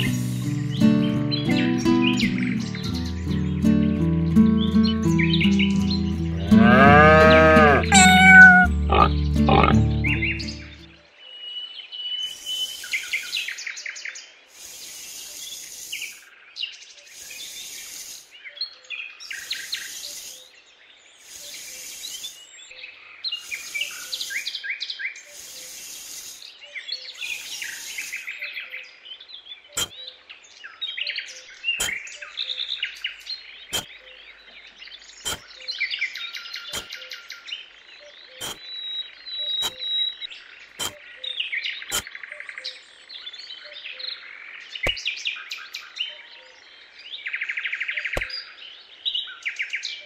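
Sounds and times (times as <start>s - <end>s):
birds chirping and singing: 0.0s - 25.8s, 26.4s - 50.0s
hand rake scraping sand: 36.7s - 36.9s, 38.4s - 38.6s, 39.6s - 39.8s, 40.8s - 41.0s.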